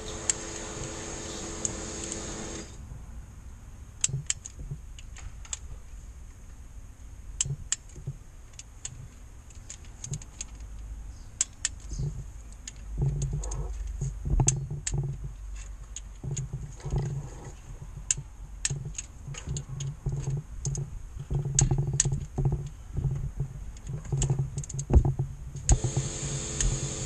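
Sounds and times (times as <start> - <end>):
motor hum: 0.0 - 2.8, 25.7 - 27.0
low thumps and rumble: 11.9 - 26.1.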